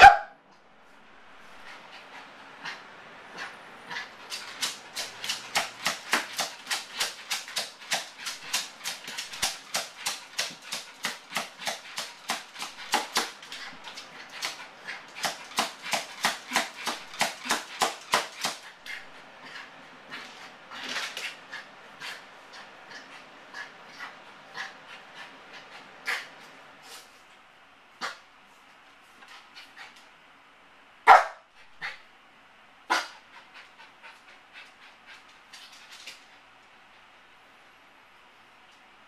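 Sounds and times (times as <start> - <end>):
small dog yapping: 0.0 - 0.4.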